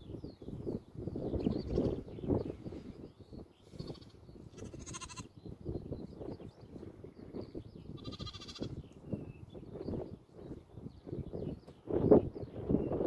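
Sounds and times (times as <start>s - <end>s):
lambs bleating: 3.9s - 5.3s, 8.0s - 8.8s.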